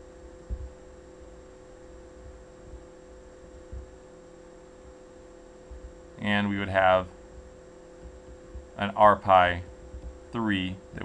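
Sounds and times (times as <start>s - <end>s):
soft low bumps: 0.0s - 0.8s, 2.1s - 4.0s, 5.6s - 6.0s, 7.1s - 8.8s, 9.6s - 10.3s
low electrical hum: 0.0s - 11.0s.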